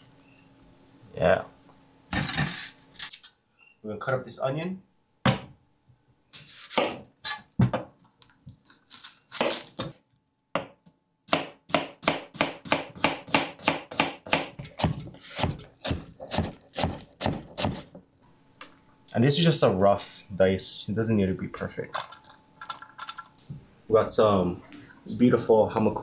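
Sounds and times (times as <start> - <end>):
knife chopping onion on board: 6.7 - 7.0, 10.6 - 18.0.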